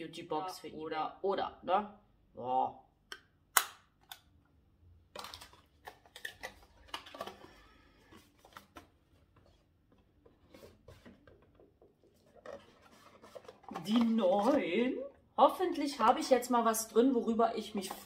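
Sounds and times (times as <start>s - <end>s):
cardboard packaging rustling and scraping: 5.5s - 14.7s.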